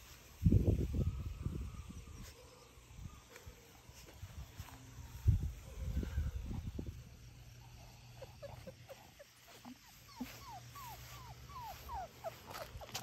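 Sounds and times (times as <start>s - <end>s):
puppy whimpering: 8.2s - 13.0s.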